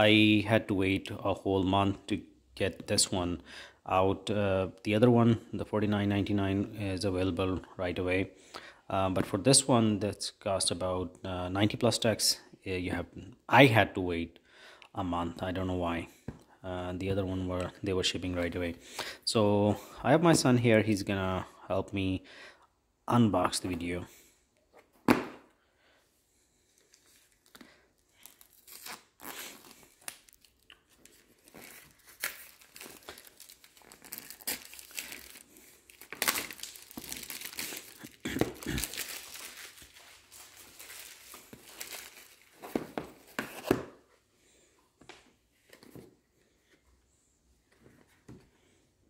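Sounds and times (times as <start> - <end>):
plastic shrink-wrap crinkling: 26.8 - 42.7.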